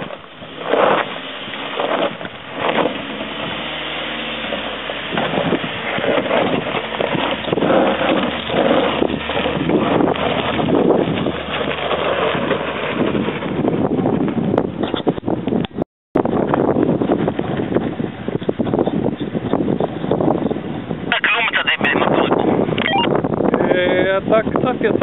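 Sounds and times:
tyres crunching over stones: 0.0 - 13.6
car engine running: 0.0 - 14.2
wind buffeting microphone: 0.0 - 25.0.

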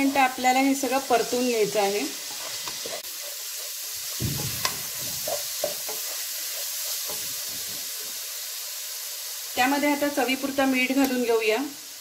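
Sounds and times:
beans sizzling in oil: 0.0 - 12.0
wooden spatula scraping a pan: 1.1 - 8.3.

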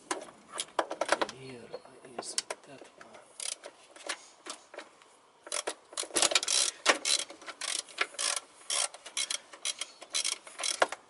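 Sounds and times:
metallic clicks and clatter of tools: 5.5 - 11.0.

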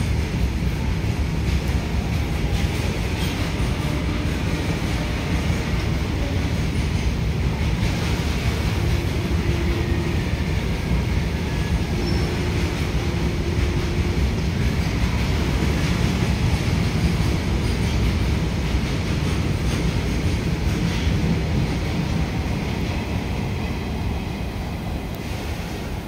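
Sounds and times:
goods train rumbling past: 0.0 - 26.0
wheel squeals: 11.8 - 12.7.

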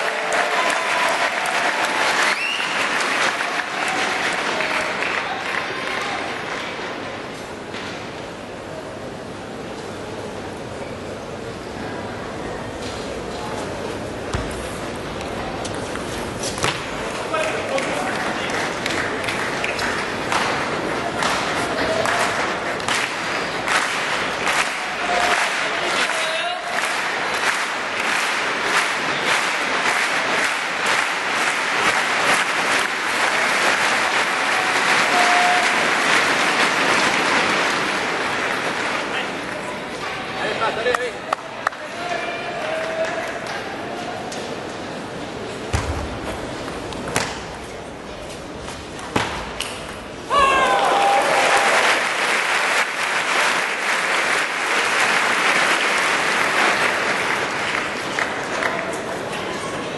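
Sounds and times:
crowd applauding: 0.0 - 7.0, 17.3 - 43.6, 50.4 - 59.8.

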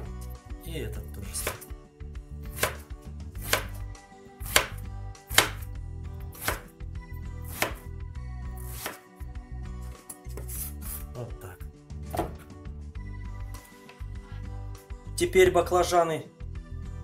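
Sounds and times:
knife chopping on cutting board: 1.4 - 1.7, 2.5 - 3.8, 4.4 - 5.7, 6.3 - 6.7, 7.4 - 7.9, 8.6 - 9.0, 10.3 - 11.0, 12.1 - 12.5.

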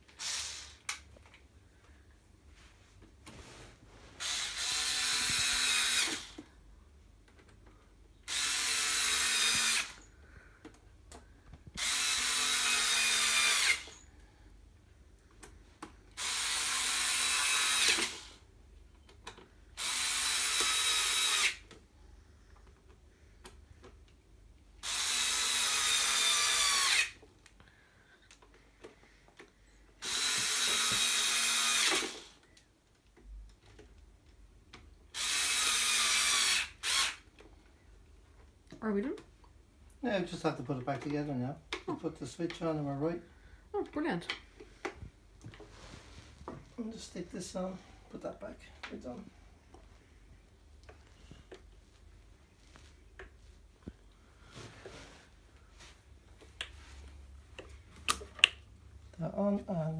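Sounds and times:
power drill whining: 0.0 - 1.0, 4.2 - 6.4, 8.3 - 10.1, 11.8 - 14.1, 16.1 - 18.4, 19.8 - 21.7, 24.8 - 27.2, 30.0 - 32.4, 35.1 - 37.3.

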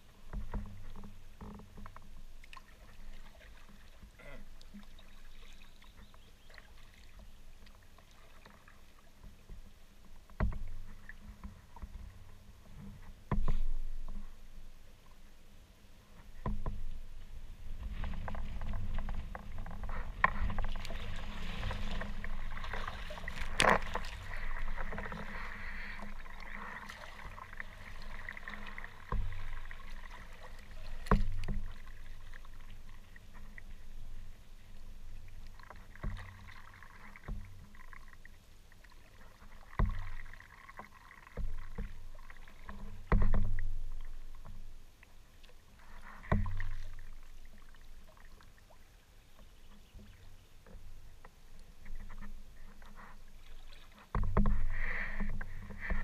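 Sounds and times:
paddle splashing water: 0.0 - 56.0
sharp knocks on kayak: 10.3 - 10.8, 13.3 - 13.8, 31.0 - 31.8, 43.0 - 43.7.

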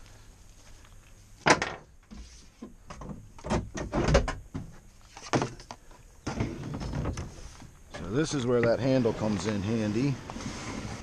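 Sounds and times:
kayak knocking and scraping: 5.1 - 11.0.

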